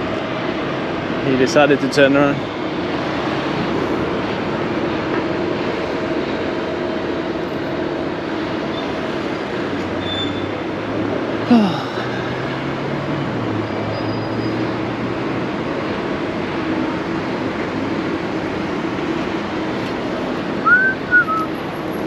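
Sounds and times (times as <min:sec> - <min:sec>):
city street traffic: 0:00.0 - 0:22.0
sound gliding down in pitch: 0:20.6 - 0:21.5
high chirp: 0:20.7 - 0:21.5.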